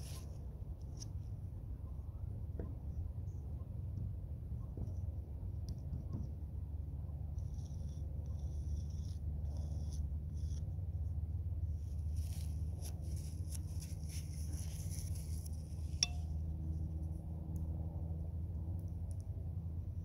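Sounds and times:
steady low rumble: 0.0s - 20.0s
painting tool scraping canvas: 7.3s - 11.0s, 11.7s - 16.0s.

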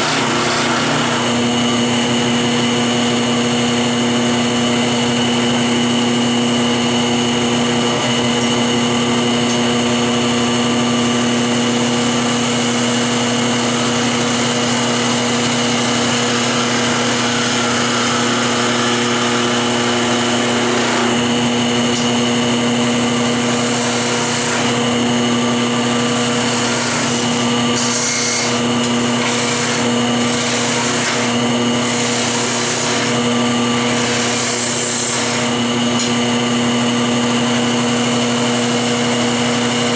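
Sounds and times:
wood lathe humming: 0.0s - 39.9s
tool cutting wood hiss: 25.9s - 36.2s.

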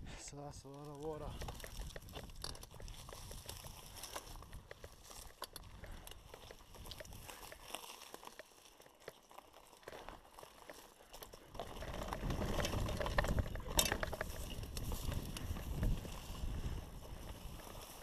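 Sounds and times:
bike tyres crunching on dirt: 0.0s - 18.0s
wind on microphone: 12.0s - 18.0s.

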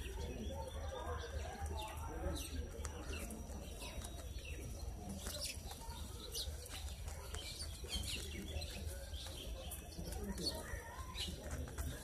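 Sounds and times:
sparrows chirping: 0.0s - 12.0s.

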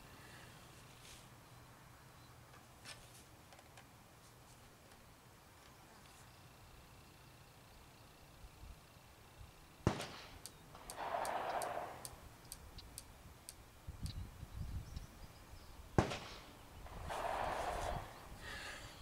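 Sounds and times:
rifle shots: 9.8s - 12.2s, 16.0s - 18.2s.

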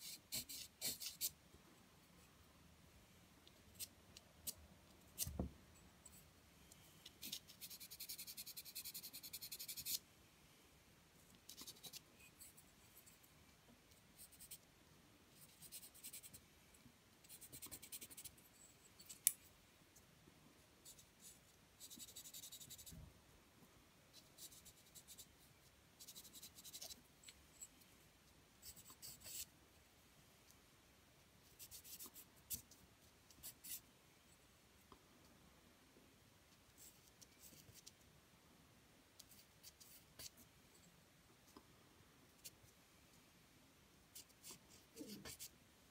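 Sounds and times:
pencil scratching on paper: 0.0s - 1.4s, 7.2s - 10.0s, 15.4s - 16.4s, 17.2s - 18.4s, 20.8s - 22.9s, 24.1s - 25.3s, 26.0s - 27.0s, 28.6s - 29.5s, 44.2s - 45.5s.

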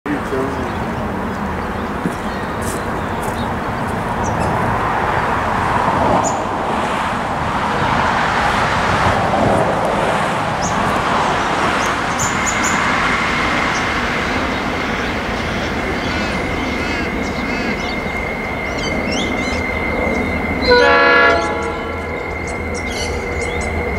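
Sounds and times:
distant traffic rumble: 0.0s - 23.9s
birds chirping: 0.1s - 8.8s, 10.4s - 23.9s
thin high whine: 9.8s - 23.9s.

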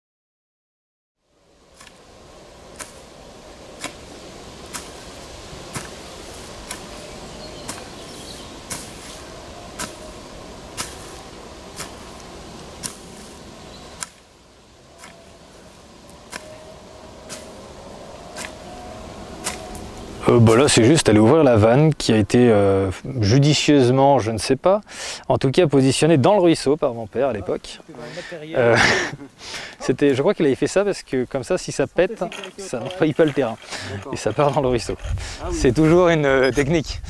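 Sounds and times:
steady hiss: 1.2s - 37.0s
faint wavering tones: 14.6s - 20.9s.

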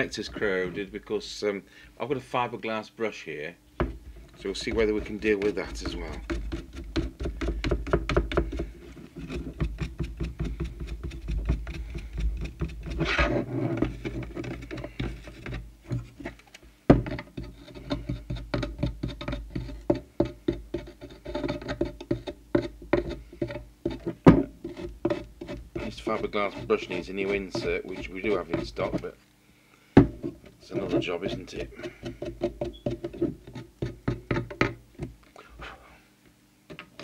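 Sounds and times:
brush scratching metal connector: 4.3s - 7.0s, 17.4s - 19.9s, 20.7s - 29.1s, 30.6s - 34.0s.

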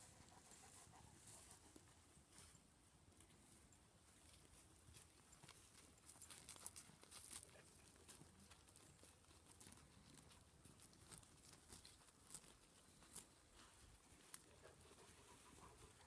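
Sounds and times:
animal cropping grass: 4.2s - 16.0s.

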